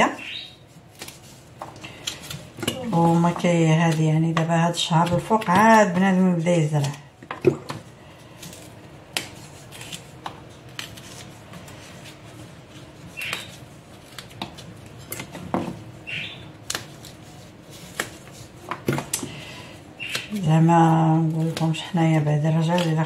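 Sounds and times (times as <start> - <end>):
bean pods snapping by hand: 8.4 - 11.2, 13.2 - 15.4, 16.2 - 17.2, 17.8 - 19.4, 20.0 - 20.5, 22.6 - 23.0.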